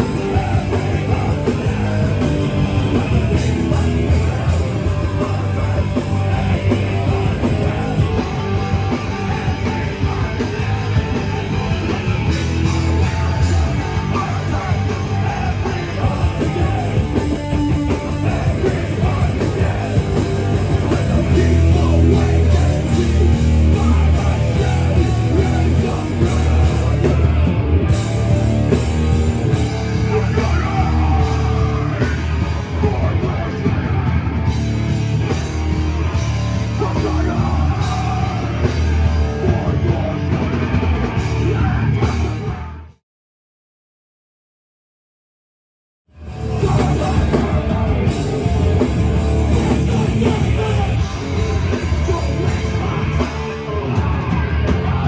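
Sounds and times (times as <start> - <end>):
bass: 0.0 - 43.0, 46.1 - 55.0
distorted electric guitars: 0.0 - 43.0, 46.1 - 55.0
drums: 0.0 - 43.0, 46.1 - 55.0
shouted vocals: 29.3 - 34.4, 36.0 - 40.6.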